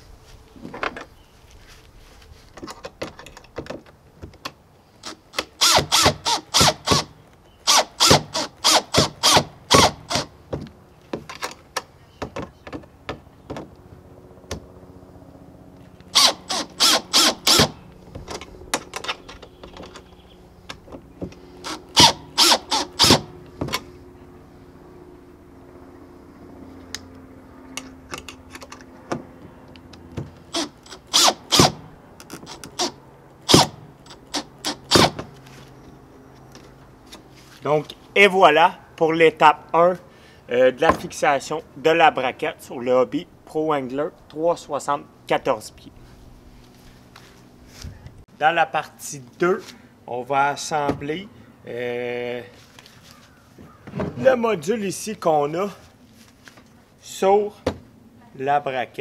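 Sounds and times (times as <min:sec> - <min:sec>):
cordless drill driving screws: 0:05.0 - 0:10.3, 0:16.1 - 0:17.8, 0:21.6 - 0:23.3, 0:30.4 - 0:35.2
drill motor hum: 0:05.0 - 0:10.4, 0:16.0 - 0:20.3, 0:21.2 - 0:23.9, 0:29.7 - 0:35.3.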